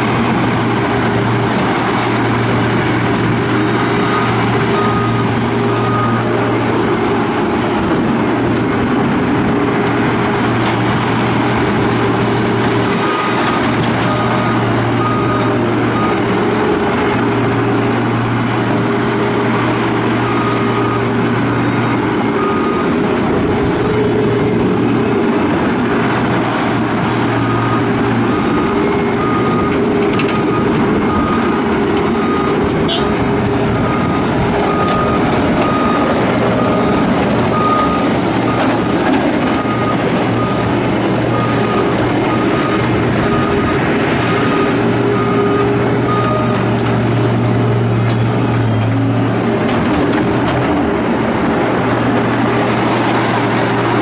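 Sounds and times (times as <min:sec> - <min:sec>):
diesel loader engine running: 0:00.0 - 0:54.0
back-up alarm beeping: 0:27.4 - 0:46.7.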